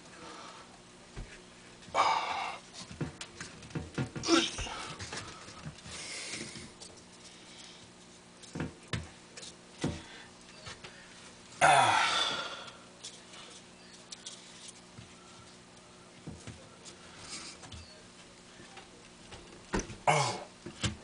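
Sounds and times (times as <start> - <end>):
person sighing: 4.2 - 4.9, 11.6 - 12.8.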